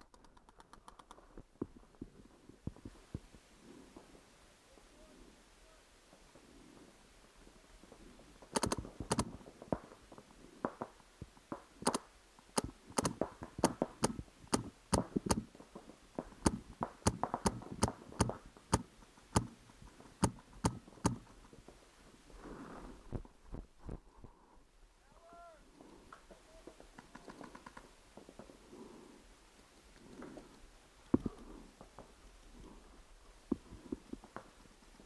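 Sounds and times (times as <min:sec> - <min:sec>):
paintball markers popping: 0:12.6 - 0:15.5.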